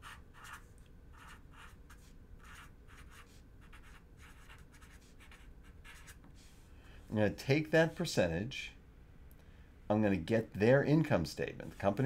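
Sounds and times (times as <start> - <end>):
marker scratching on paper: 0.0 - 6.6.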